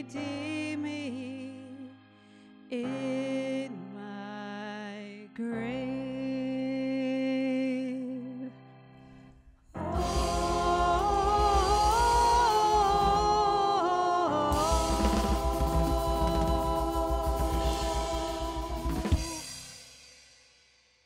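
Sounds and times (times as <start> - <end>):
piano: 0.0 - 20.0
bass guitar: 9.8 - 19.6
lead singer and choir singing: 9.8 - 19.6
rapid drumming: 9.9 - 13.7, 14.5 - 20.1.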